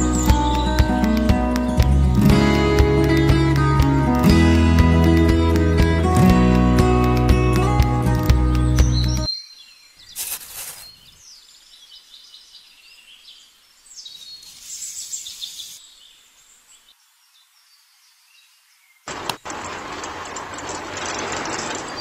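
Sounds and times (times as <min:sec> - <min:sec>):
faint bird chirps: 0:08.9 - 0:22.0.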